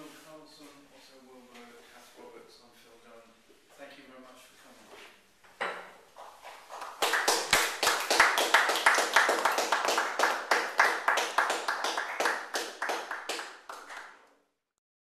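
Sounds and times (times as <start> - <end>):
small audience applauding: 6.7 - 14.4.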